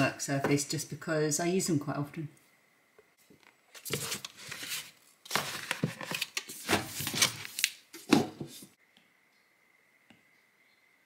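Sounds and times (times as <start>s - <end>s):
book covers scraping: 3.8s - 8.8s.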